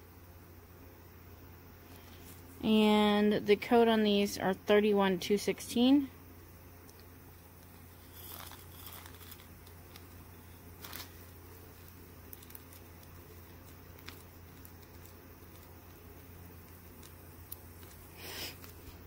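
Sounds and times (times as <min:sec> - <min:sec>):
plastic bag crinkling: 0:07.6 - 0:19.0
glass beads sliding into bag: 0:07.9 - 0:10.1.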